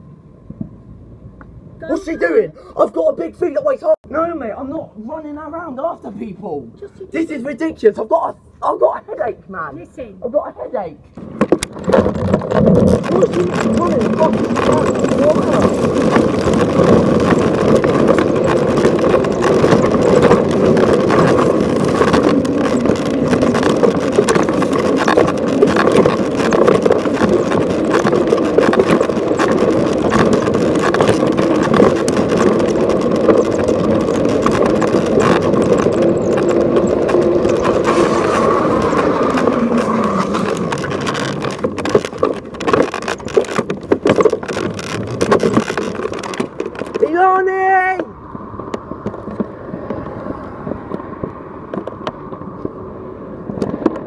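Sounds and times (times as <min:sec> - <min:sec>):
uneven rattles and clicks: 0:11.2 - 0:47.3.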